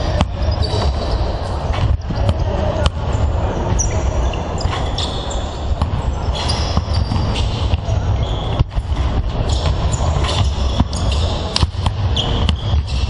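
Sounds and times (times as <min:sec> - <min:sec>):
basketballs bouncing on wooden floor: 0:00.0 - 0:03.9, 0:05.7 - 0:13.0
voices: 0:00.0 - 0:08.6.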